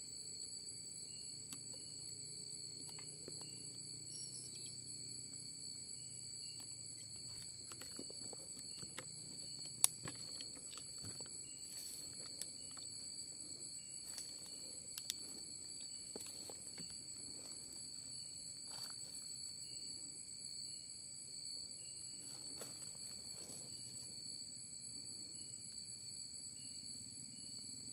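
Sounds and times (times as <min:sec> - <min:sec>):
insects trilling: 0:00.0 - 0:27.9.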